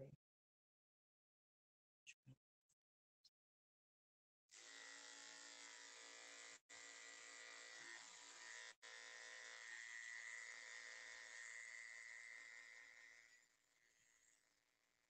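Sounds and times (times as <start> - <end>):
electric clippers buzzing: 4.5 - 14.5.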